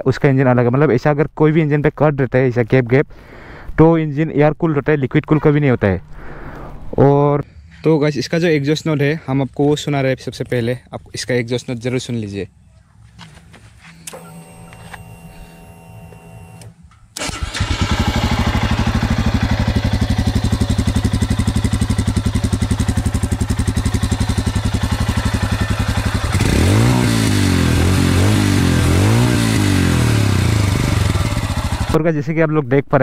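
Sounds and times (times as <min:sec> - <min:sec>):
motorcycle engine starting: 0:14.0 - 0:32.0
motorcycle engine idling: 0:17.2 - 0:32.0
motorcycle engine revving: 0:17.2 - 0:32.0.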